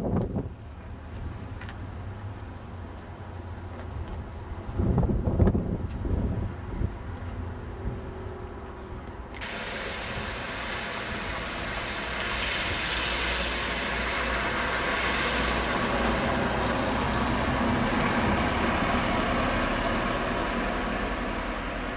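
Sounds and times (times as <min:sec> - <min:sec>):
low engine rumble: 0:00.0 - 0:21.9
tyres hissing through water: 0:09.4 - 0:21.9.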